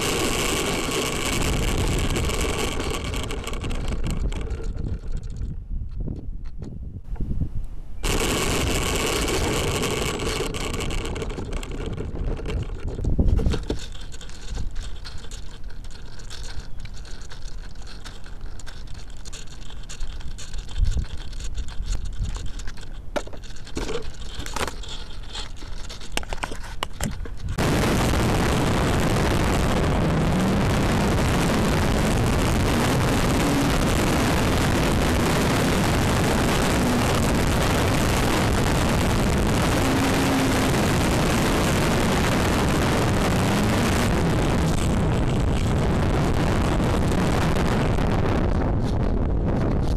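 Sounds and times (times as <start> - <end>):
electric motor and propeller whirring: 0.0 - 7.3, 8.0 - 49.9
wind rushing over microphone: 0.0 - 14.8, 26.4 - 49.9.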